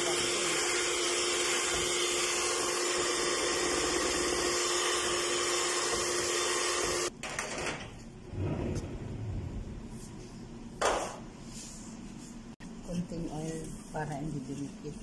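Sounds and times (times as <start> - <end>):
electric hand mixer whining: 0.0 - 7.1.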